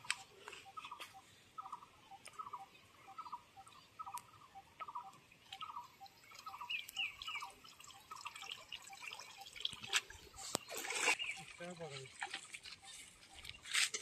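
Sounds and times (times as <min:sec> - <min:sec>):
water dripping and splashing: 0:04.1 - 0:14.0.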